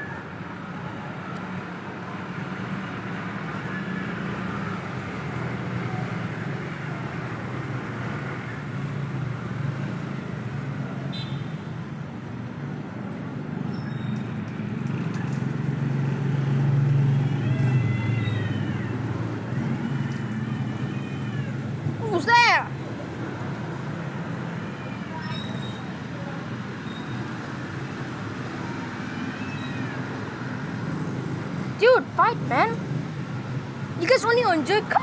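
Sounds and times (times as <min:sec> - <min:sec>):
low rumble of traffic: 0:00.0 - 0:35.0
cats yowling: 0:17.1 - 0:22.5, 0:28.7 - 0:30.3.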